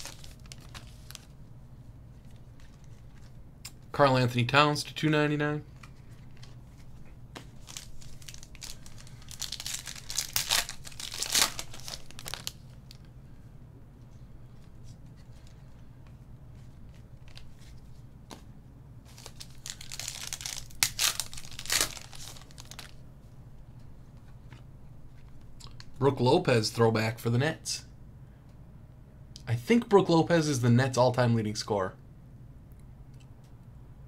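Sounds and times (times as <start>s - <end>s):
foil wrappers tearing and crinkling: 0.0s - 1.3s, 7.6s - 13.0s, 19.1s - 23.0s.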